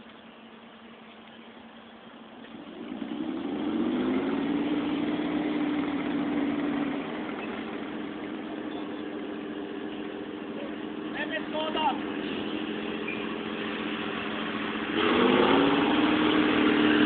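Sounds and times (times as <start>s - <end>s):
military vehicle engine running: 0.0s - 17.0s.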